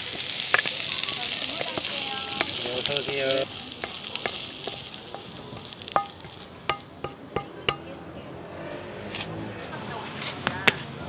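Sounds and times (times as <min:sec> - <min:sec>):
fried rice sizzling in a pan: 0:00.0 - 0:07.8
spatula knocking against pan: 0:01.8 - 0:07.5.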